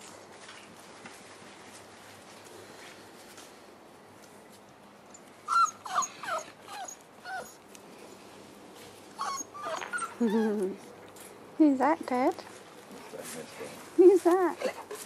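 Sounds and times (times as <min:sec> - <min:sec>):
puppies whimpering: 0:05.5 - 0:07.6, 0:09.2 - 0:10.9.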